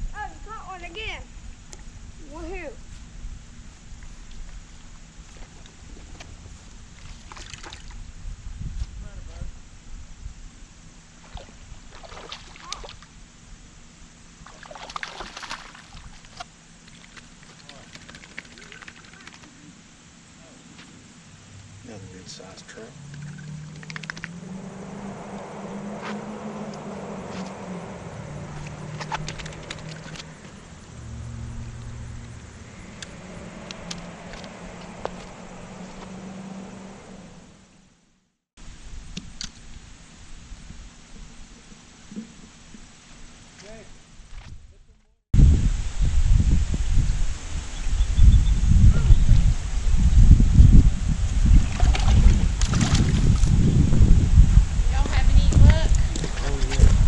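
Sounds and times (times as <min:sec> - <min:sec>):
wind rumble on microphone: 0:00.0 - 0:12.1, 0:23.2 - 0:37.0, 0:44.2 - 0:57.0
low motor hum: 0:00.0 - 0:38.2, 0:45.4 - 0:57.0
fish splashing in water: 0:11.3 - 0:13.0, 0:14.4 - 0:19.5, 0:28.5 - 0:30.8, 0:51.6 - 0:53.6
sharp ticks: 0:23.0 - 0:24.4, 0:28.6 - 0:30.8, 0:31.8 - 0:34.6.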